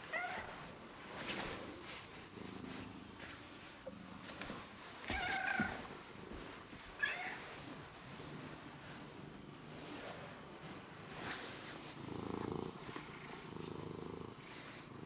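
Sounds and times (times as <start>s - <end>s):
cat purring: 8.2s - 15.0s.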